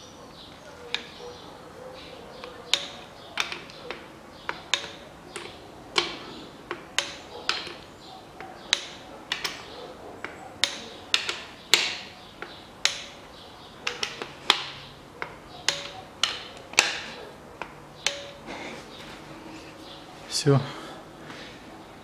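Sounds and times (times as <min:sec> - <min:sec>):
torque wrench clicking: 0:02.4 - 0:17.0.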